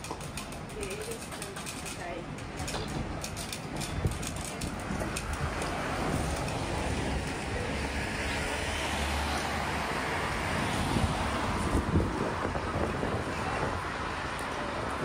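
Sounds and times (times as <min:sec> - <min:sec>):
street noise: 0:00.0 - 0:15.0
passing vehicle rumble: 0:04.0 - 0:15.0.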